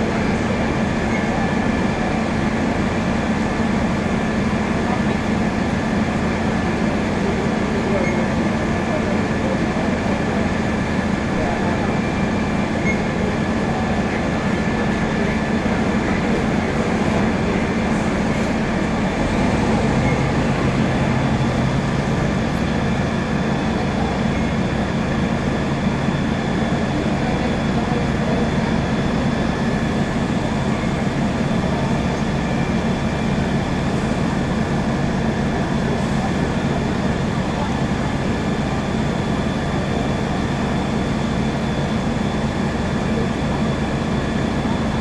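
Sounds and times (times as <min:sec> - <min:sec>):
diesel engine running: 0:00.0 - 0:45.0
lower engine tone: 0:11.4 - 0:25.6.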